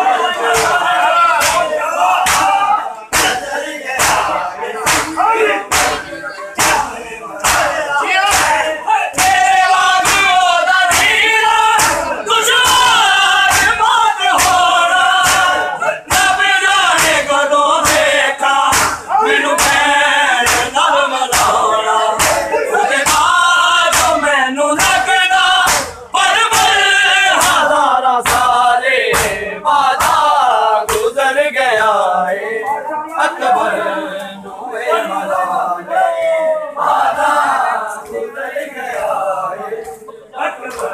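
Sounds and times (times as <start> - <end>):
crowd of men chanting: 0.0 - 40.9
hands slapping bare chests: 1.4 - 3.4, 4.0 - 6.0, 6.6 - 11.2, 11.8 - 18.1, 18.7 - 19.0, 19.6 - 19.8, 20.4 - 21.6, 22.2 - 24.2, 24.8 - 30.3, 30.9 - 31.1.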